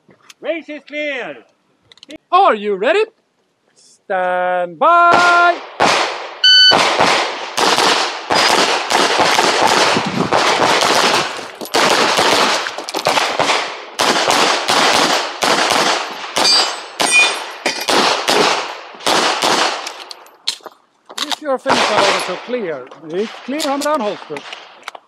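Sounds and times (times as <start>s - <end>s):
pistol shots in rapid strings: 5.1s - 16.5s, 17.9s - 19.8s, 21.7s - 22.4s
shot timer beep: 6.4s - 6.8s.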